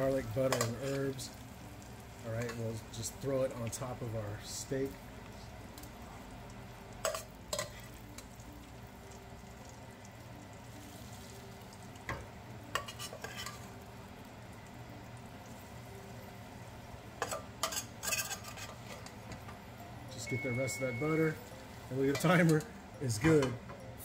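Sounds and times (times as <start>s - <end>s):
butter sizzling: 0.0s - 24.0s
metal utensil scraping frying pan: 0.4s - 1.1s, 7.0s - 8.0s, 12.7s - 13.8s, 17.2s - 19.2s.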